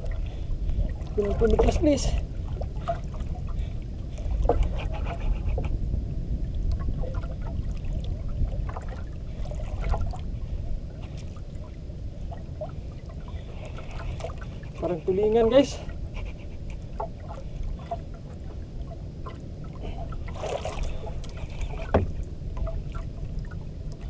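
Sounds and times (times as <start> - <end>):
steady low rumble: 0.0 - 24.0
water lapping and splashing: 0.0 - 24.0
light knocks: 21.8 - 22.2.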